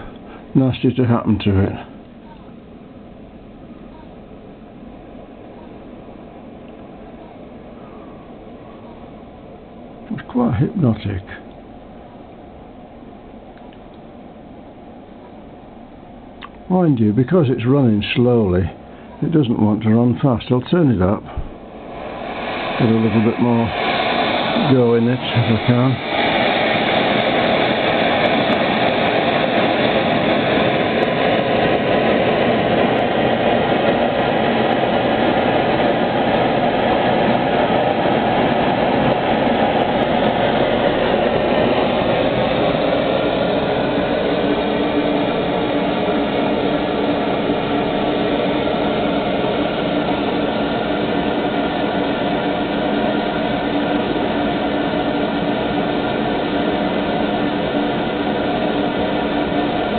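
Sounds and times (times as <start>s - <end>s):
hot-air engine running: 0.0s - 59.9s
steady hum: 0.0s - 59.9s
gas burner rushing: 16.5s - 59.9s.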